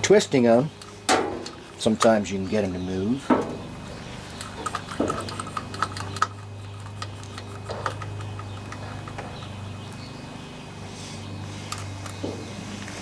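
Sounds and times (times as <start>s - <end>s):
steady low hum: 0.0s - 13.0s
pliers clicking and scraping: 4.4s - 9.2s.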